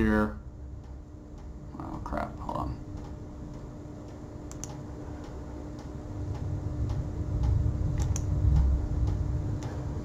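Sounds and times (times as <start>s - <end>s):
low rumble: 0.0s - 10.0s
steady low hum: 0.0s - 10.0s
computer mouse clicking: 2.9s - 9.8s.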